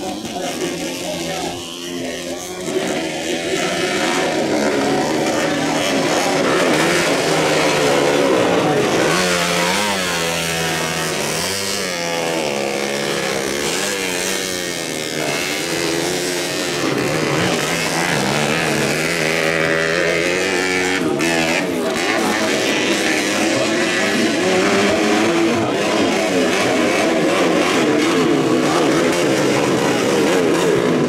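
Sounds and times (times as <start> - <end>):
motocross bike engine revving: 0.0 - 31.0.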